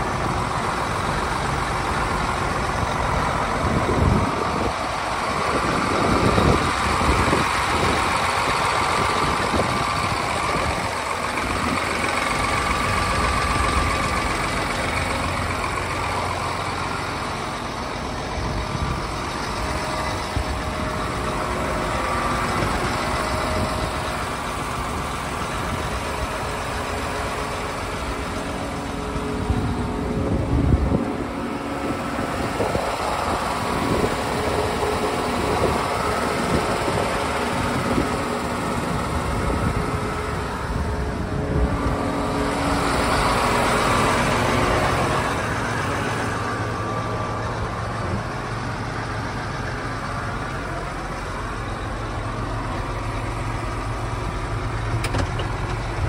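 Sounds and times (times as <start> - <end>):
tractor diesel engine idling: 0.0 - 56.0.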